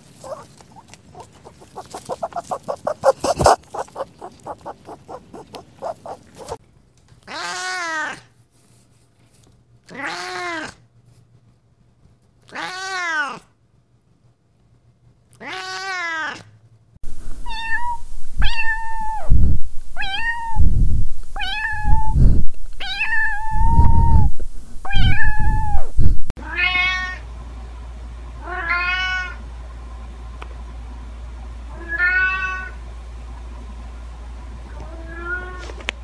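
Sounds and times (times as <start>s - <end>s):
cats meowing: 0.0s - 6.6s
steady hum: 0.0s - 6.6s.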